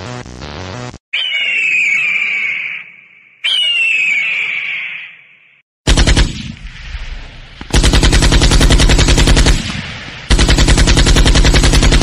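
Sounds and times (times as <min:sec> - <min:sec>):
machine-gun fire over loudspeaker: 0:05.9 - 0:06.5, 0:07.7 - 0:12.0.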